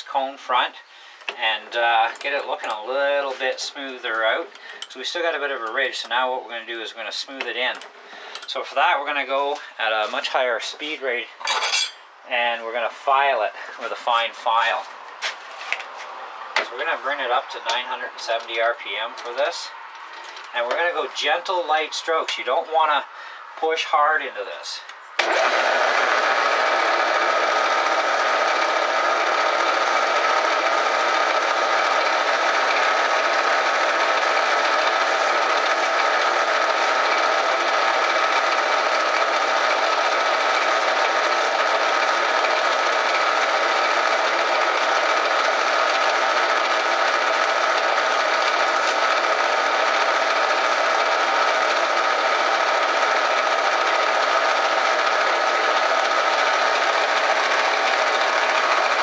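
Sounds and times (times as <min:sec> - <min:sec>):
file rasping on spinning metal: 0:31.0 - 0:59.0.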